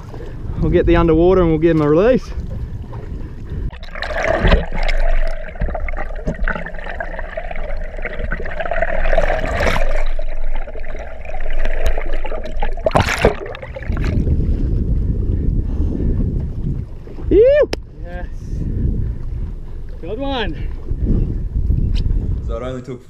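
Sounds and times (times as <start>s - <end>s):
steady hum: 0.0s - 21.9s
muffled underwater gurgling: 2.2s - 17.4s
loud splash: 3.8s - 14.3s.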